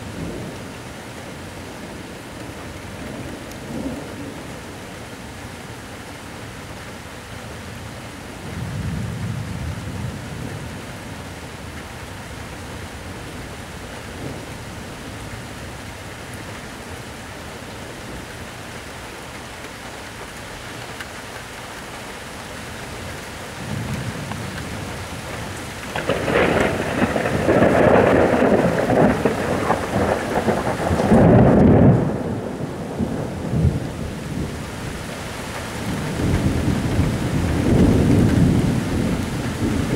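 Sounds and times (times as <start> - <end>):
steady rain: 0.0 - 39.9
rolling thunder: 23.6 - 35.0, 35.8 - 39.9.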